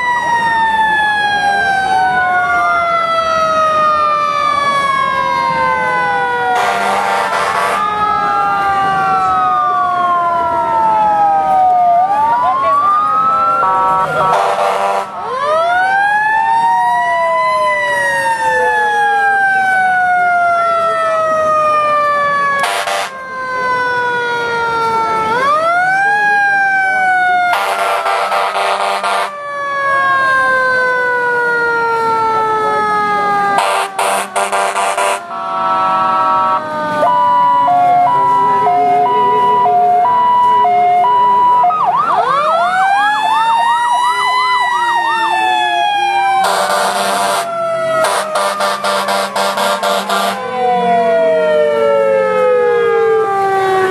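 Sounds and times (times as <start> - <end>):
fire truck sirens wailing: 0.0 - 53.9
two-tone hi-lo siren: 0.0 - 53.9
long horn blasts: 6.5 - 7.8, 14.3 - 15.2, 22.6 - 23.1, 27.6 - 29.3, 33.6 - 35.3, 46.5 - 50.5.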